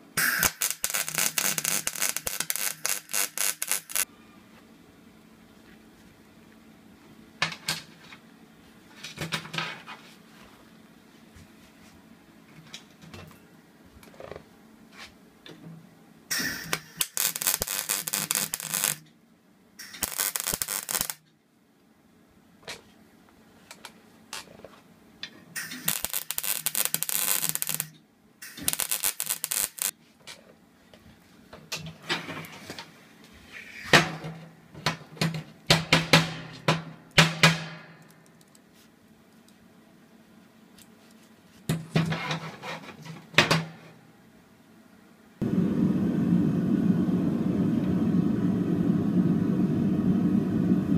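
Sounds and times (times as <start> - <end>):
welding arc crackling: 0.2 - 4.1, 16.3 - 19.0, 19.8 - 21.2, 25.6 - 29.9.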